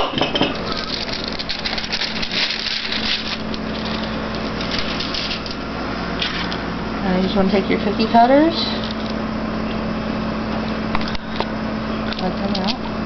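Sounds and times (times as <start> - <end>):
steady low hum: 0.0 - 13.0
plastic sheet rustling and crinkling: 0.5 - 5.6.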